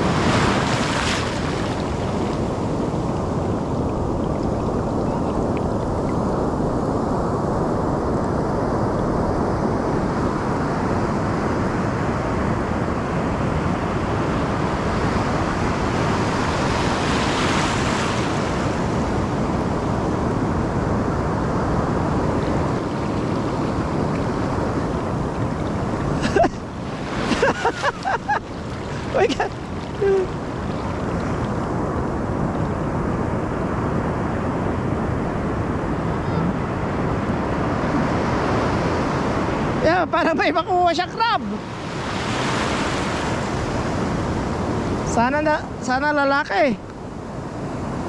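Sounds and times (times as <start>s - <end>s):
ocean surf washing in: 0.0s - 48.0s.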